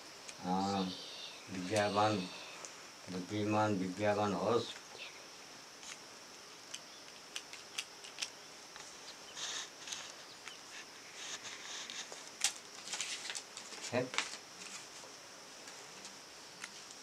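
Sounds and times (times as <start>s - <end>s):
faint steady high hiss: 0.0s - 17.0s
soft rustles: 7.3s - 17.0s.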